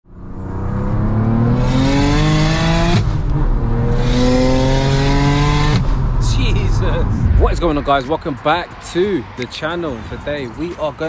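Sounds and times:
car engine accelerating hard: 0.2s - 7.8s.

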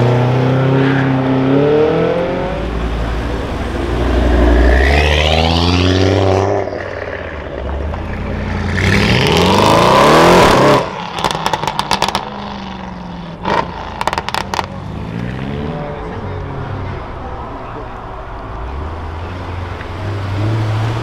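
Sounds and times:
car engine accelerating hard: 0.0s - 12.8s
car engine pulling away: 0.0s - 16.3s
exhaust pops and crackles: 10.9s - 12.7s, 13.4s - 14.8s.

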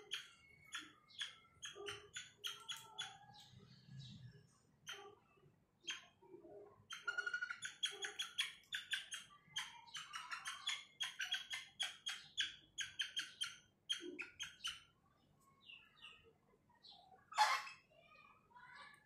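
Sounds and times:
hen chirping calls: 0.0s - 3.6s, 6.9s - 14.9s, 17.3s - 17.9s.

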